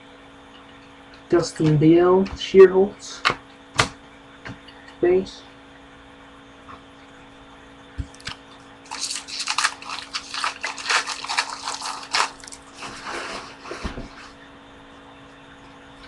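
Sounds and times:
plastic wrapper crinkling and tearing: 8.2s - 13.0s.

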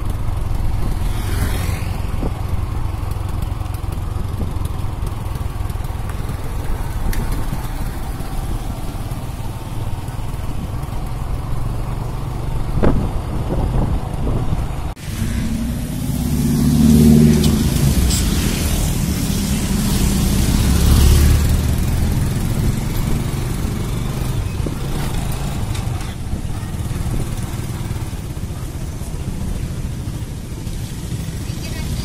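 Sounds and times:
motor scooter engine: 0.0s - 32.0s
road noise: 0.0s - 32.0s
low rumble: 12.3s - 23.8s.

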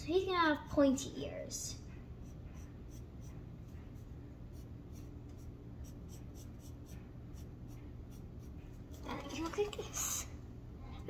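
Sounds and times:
faint low hum: 0.0s - 11.0s
pencil scratching on paper: 1.9s - 9.5s.

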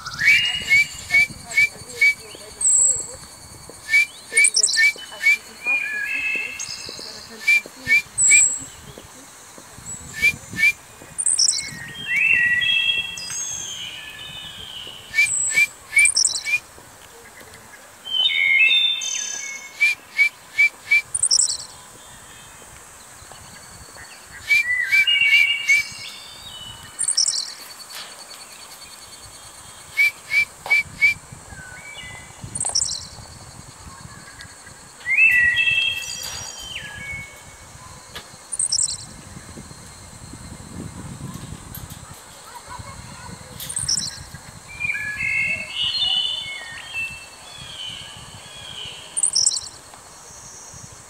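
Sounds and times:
parrot whistling calls: 0.0s - 2.7s, 3.7s - 8.6s, 15.1s - 16.6s, 19.2s - 21.6s, 24.4s - 26.0s, 27.0s - 27.4s, 29.9s - 31.2s, 38.5s - 39.0s.

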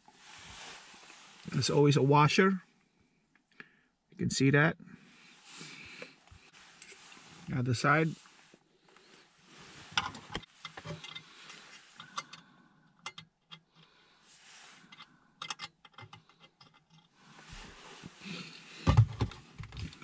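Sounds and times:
heavy thumps: 18.8s - 19.4s.

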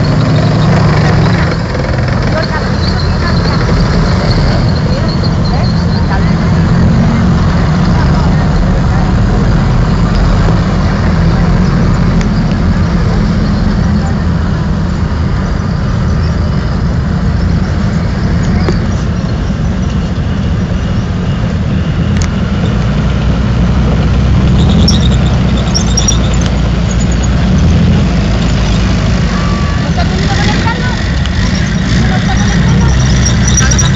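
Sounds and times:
tanks rumbling past: 0.0s - 33.9s
brief high squeaks: 24.4s - 27.7s.

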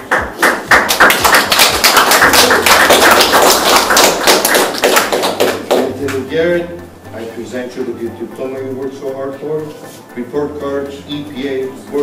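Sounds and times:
audience applauding: 0.0s - 5.9s
loud close hand claps: 0.0s - 5.9s.

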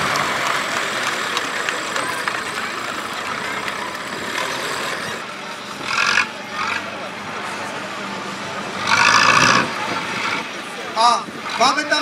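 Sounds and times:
crowd chatter: 0.0s - 12.0s
tractor engine running: 0.0s - 12.0s.

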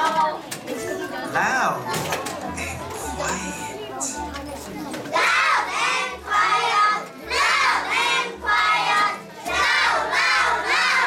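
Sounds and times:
children singing: 5.1s - 11.0s.

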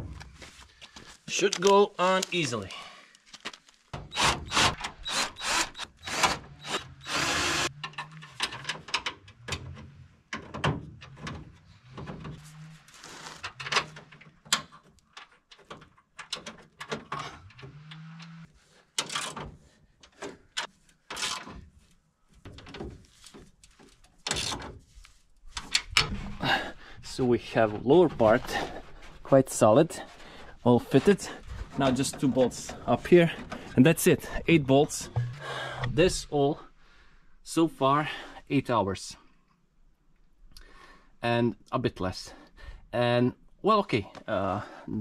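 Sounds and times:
cordless drill driving bolt: 4.0s - 7.8s
metal knocks and clanks: 35.1s - 36.0s.

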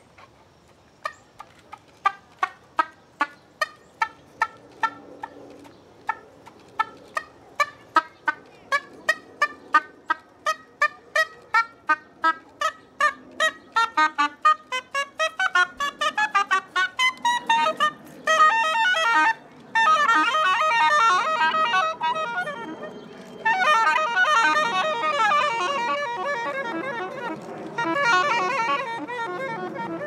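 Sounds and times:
soprano saxophone staccato notes: 7.6s - 30.0s.

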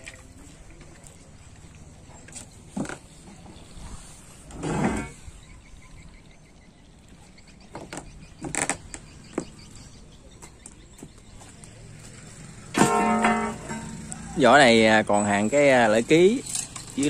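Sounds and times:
steel plate scraping: 4.4s - 5.2s, 12.7s - 14.1s
metallic knocks and clunks: 12.7s - 14.1s.

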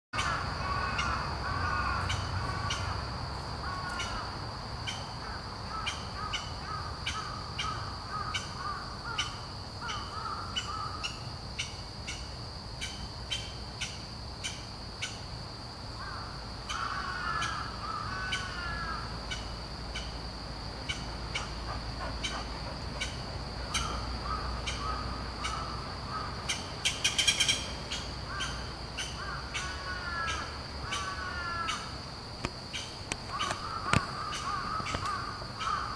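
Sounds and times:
woodpecker calling: 16.0s - 20.2s, 20.8s - 32.0s, 32.7s - 35.9s
high-pitched insect drone: 16.0s - 35.9s.

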